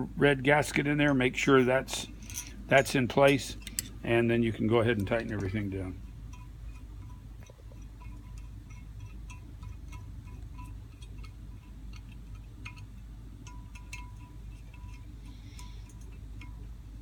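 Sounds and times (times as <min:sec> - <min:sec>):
steady low hum: 0:00.0 - 0:17.0
small metallic clicks: 0:02.2 - 0:04.0, 0:06.3 - 0:16.8.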